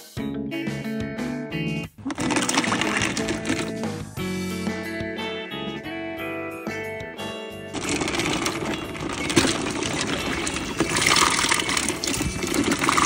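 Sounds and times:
water splashing and bubbling: 2.1s - 3.7s, 7.8s - 13.0s.

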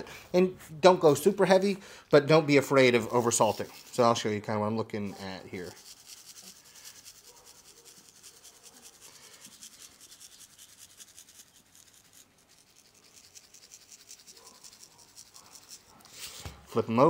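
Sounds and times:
salt grains ticking: 5.6s - 16.1s.

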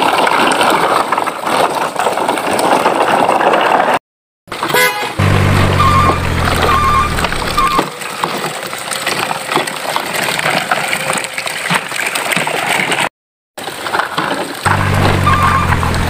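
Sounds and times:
toy trucks rattling over dirt: 0.0s - 16.0s
short repeated beeps: 5.8s - 7.9s.

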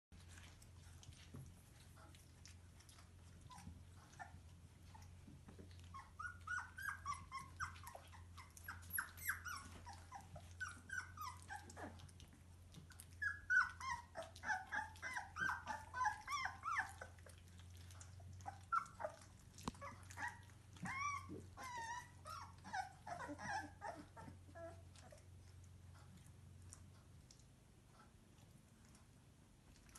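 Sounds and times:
puppies whining: 0.2s - 26.8s.

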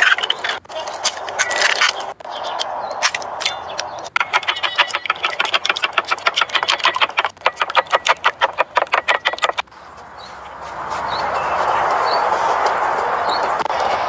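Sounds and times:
eggs beaten in a metal bowl: 4.1s - 9.7s.

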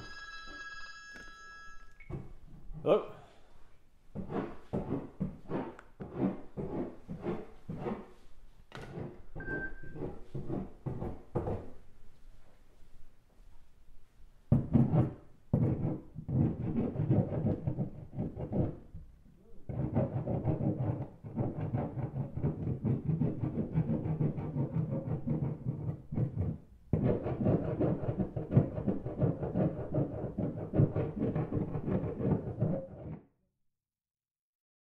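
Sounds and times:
rough scraping against a wall: 4.1s - 11.8s, 14.5s - 33.3s.

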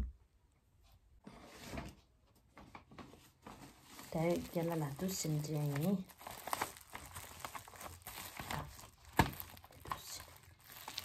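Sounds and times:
foil wrapping crinkling: 3.6s - 11.0s.

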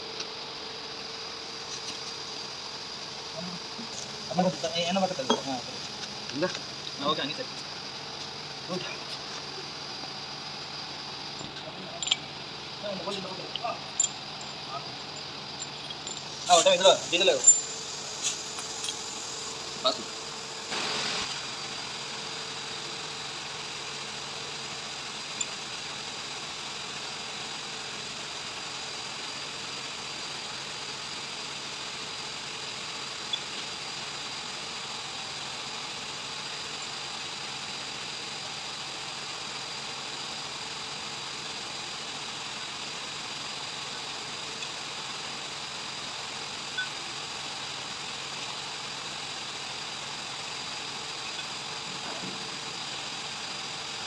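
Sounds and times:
machinery hum with high whine: 0.0s - 54.0s
metal parts clicking: 12.0s - 12.2s.

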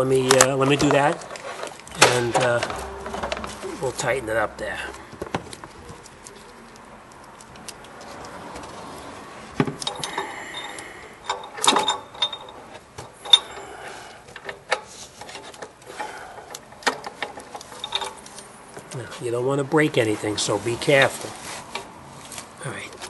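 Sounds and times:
metallic clinks and knocks: 1.7s - 6.5s, 9.8s - 13.7s, 16.8s - 18.5s.

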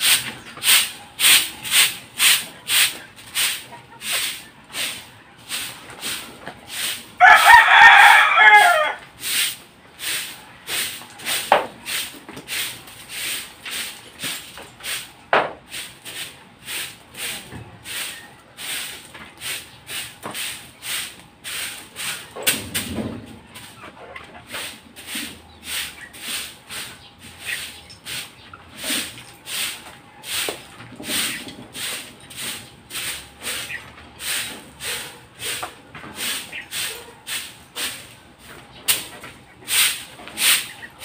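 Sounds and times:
chicken calls: 0.0s - 14.0s, 16.0s - 41.0s
broom sweeping dirt: 0.0s - 41.0s
rooster crowing: 7.2s - 9.0s.

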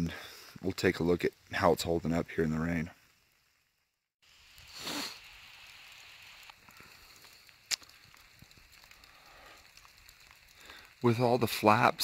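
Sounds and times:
rain pattering on a canvas tent: 0.0s - 3.0s, 4.2s - 12.0s
drops ticking: 5.4s - 12.0s.

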